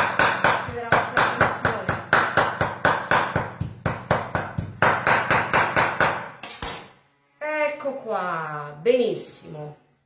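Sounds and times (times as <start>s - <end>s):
knife chopping meat on wooden board: 0.0s - 6.3s.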